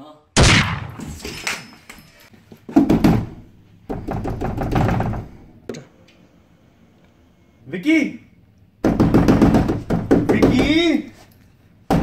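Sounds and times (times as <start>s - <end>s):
hand knocking on a door: 8.8s - 10.9s.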